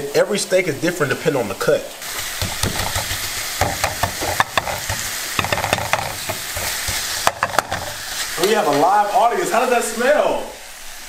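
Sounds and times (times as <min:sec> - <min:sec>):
utensil scraping pan: 0:02.0 - 0:08.5
steak sizzling in frying pan: 0:02.0 - 0:10.0.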